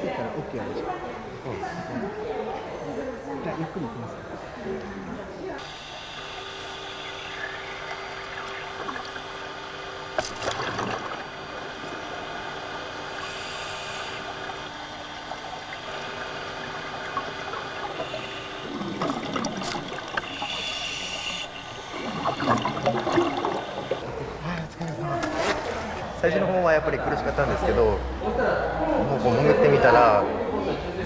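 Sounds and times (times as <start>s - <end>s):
steady hum: 5.0s - 30.5s
bubbles gurgling underwater: 7.8s - 9.4s, 10.2s - 11.4s, 14.2s - 20.6s, 21.5s - 24.0s
diver breathing through regulator: 13.1s - 14.4s, 17.8s - 24.0s.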